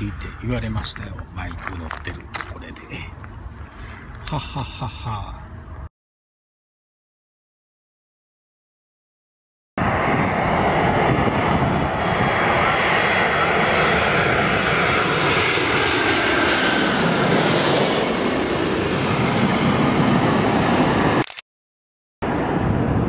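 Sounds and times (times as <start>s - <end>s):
jet airliner roaring overhead: 0.0s - 5.9s, 9.8s - 21.2s, 22.2s - 23.0s.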